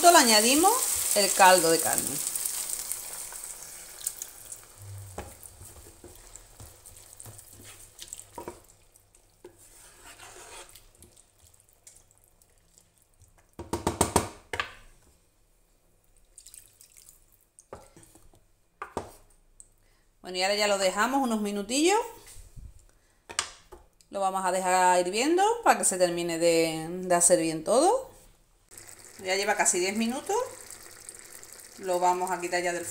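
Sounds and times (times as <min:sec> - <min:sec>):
liquid sizzling in a hot pan: 0:00.0 - 0:08.9, 0:28.7 - 0:32.9
wooden spoon scraping a pan: 0:05.1 - 0:08.6, 0:09.4 - 0:11.1.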